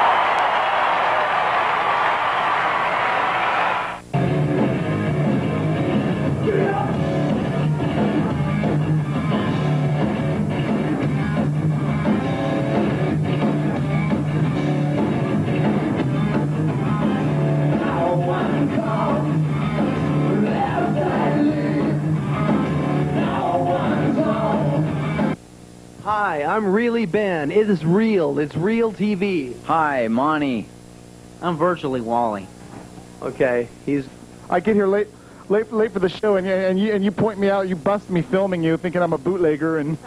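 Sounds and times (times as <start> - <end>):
heavy rock band playing live: 4.1 - 25.4
man singing into microphone: 17.7 - 19.4, 20.3 - 22.0, 23.1 - 24.8.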